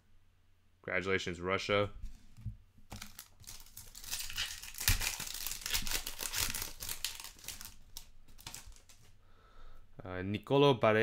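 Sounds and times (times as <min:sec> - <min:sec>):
foil wrapper crinkling and ripping: 0:02.9 - 0:09.1.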